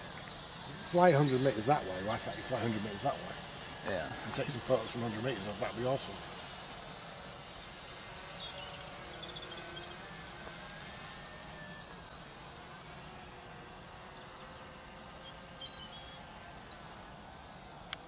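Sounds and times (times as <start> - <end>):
drone buzzing overhead: 0.0 - 18.0
low outdoor background: 0.0 - 18.0
high bird chirps: 8.4 - 9.9, 15.2 - 17.0.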